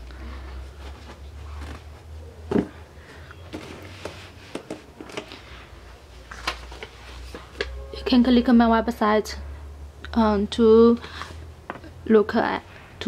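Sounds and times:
handling rustles and clicks: 0.8 - 2.8, 3.4 - 5.4.

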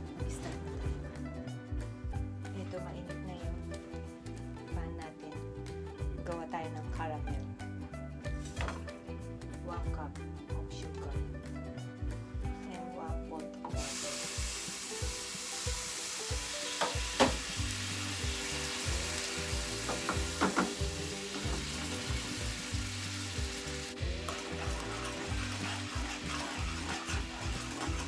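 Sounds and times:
syrup sizzling and bubbling in pan: 13.8 - 28.0
stirring in pan: 17.9 - 28.0.

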